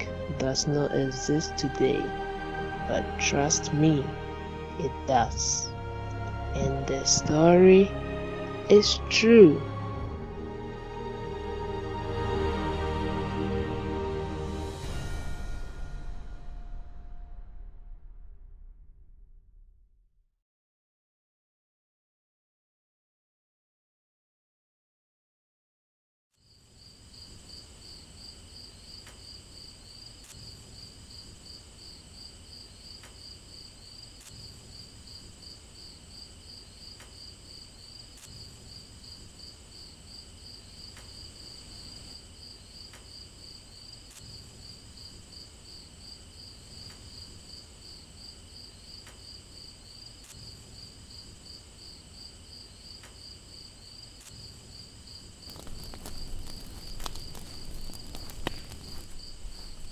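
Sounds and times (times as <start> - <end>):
crickets chirping: 0.0 - 12.4, 26.4 - 59.9
louder low sound: 14.8 - 20.2.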